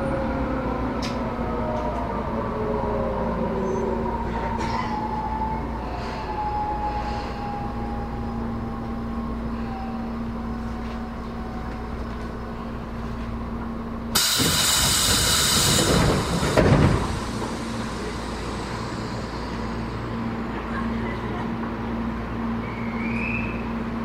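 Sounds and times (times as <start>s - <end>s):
train hum: 0.0s - 24.0s
compressed air hiss: 14.2s - 19.9s
thump: 14.3s - 17.2s.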